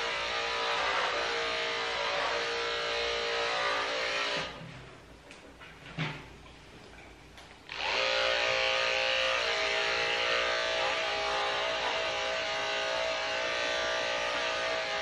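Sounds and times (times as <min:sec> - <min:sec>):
electric clippers buzzing: 0:00.0 - 0:04.6, 0:07.7 - 0:15.0.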